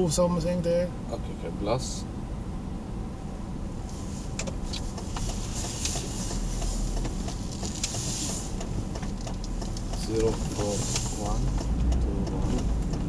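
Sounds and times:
low engine and road rumble: 0.0s - 13.0s
hiss: 7.8s - 8.6s.

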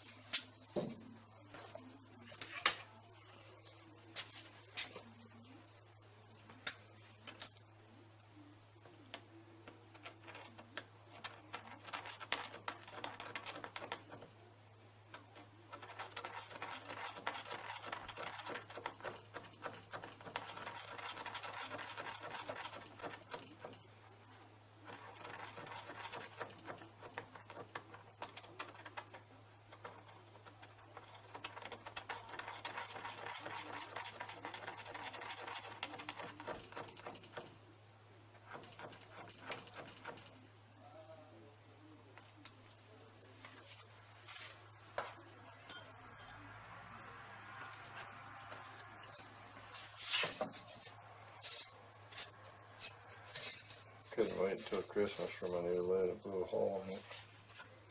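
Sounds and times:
dense crackling from furnace: 47.2s - 57.8s.

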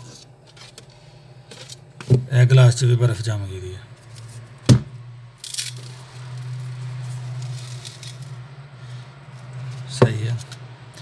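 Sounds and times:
refrigerator compressor humming: 0.0s - 11.0s
paper cup crackling: 5.4s - 11.0s.

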